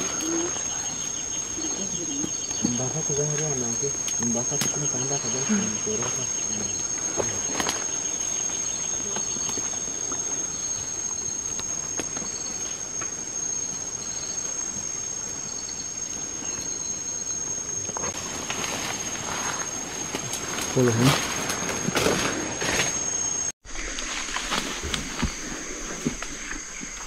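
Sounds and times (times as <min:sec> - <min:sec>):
high-pitched insect drone: 0:00.0 - 0:27.0
insect chirping pulses: 0:00.0 - 0:27.0.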